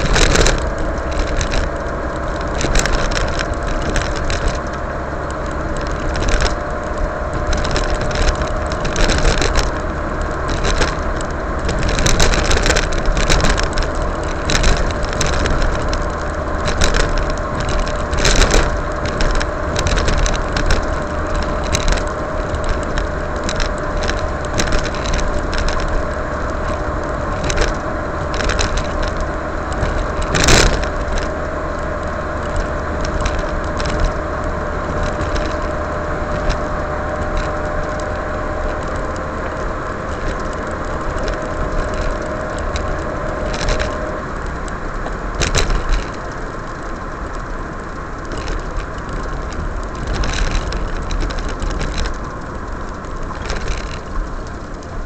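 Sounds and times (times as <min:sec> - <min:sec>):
car road and engine noise: 0:00.0 - 0:55.0.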